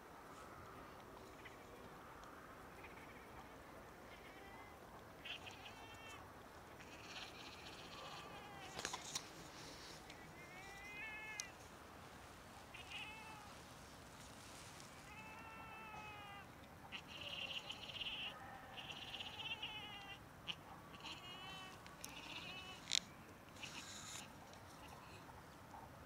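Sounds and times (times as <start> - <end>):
cat meowing cries: 4.1 - 6.2, 6.8 - 9.2, 10.2 - 11.5, 12.7 - 13.6, 14.9 - 23.0, 23.6 - 24.2.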